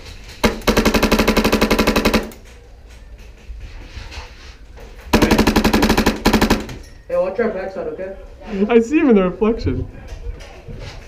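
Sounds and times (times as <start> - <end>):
airsoft rifle rapid shots: 0.4 - 2.4, 5.1 - 6.8.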